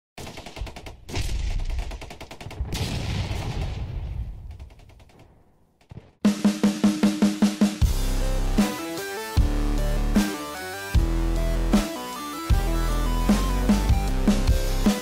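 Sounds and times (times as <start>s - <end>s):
rapid gunfire: 0.2s - 5.3s
heavy blast: 2.6s - 4.6s
drum beat: 6.2s - 8.0s.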